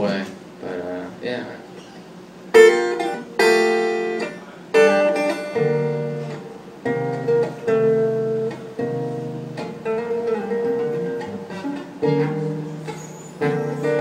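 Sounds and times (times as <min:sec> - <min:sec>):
acoustic guitar strumming chords: 0:02.4 - 0:14.0.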